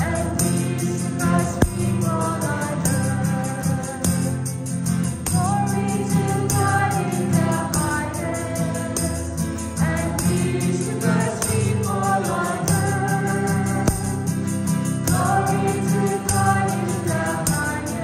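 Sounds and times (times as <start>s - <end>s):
church choir singing: 0.0s - 18.0s
steady percussive beat: 1.5s - 2.2s, 12.7s - 15.7s
instrumental accompaniment: 8.4s - 17.7s.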